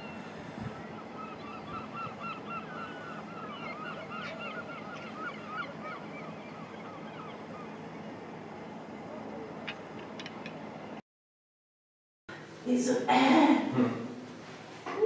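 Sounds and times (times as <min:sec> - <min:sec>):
birds calling: 0:00.0 - 0:11.0
steady background noise: 0:00.0 - 0:11.0.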